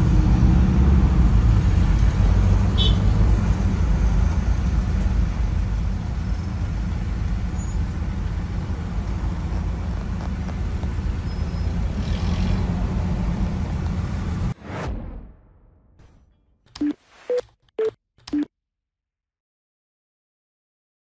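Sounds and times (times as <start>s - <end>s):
engine and road rumble: 0.0s - 14.6s.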